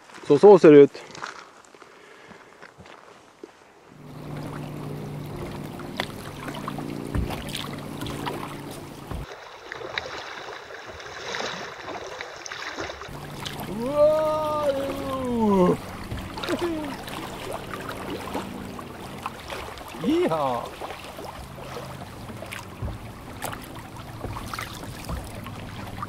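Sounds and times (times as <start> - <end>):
rushing river water: 3.6 - 26.0
knocks on boat: 4.0 - 9.3, 13.1 - 20.0, 20.8 - 26.0.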